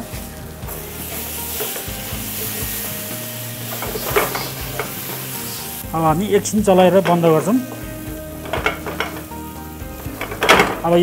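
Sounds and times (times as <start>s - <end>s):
chicken sizzling in oil: 0.0s - 11.0s
spatula scraping pan: 3.7s - 5.8s.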